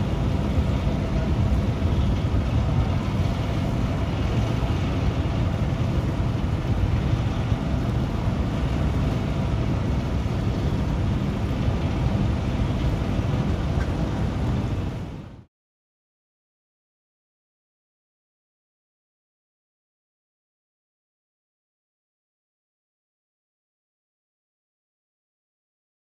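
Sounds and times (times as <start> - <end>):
water and sand splashing: 0.0 - 15.1
heavy rumble: 0.0 - 15.5.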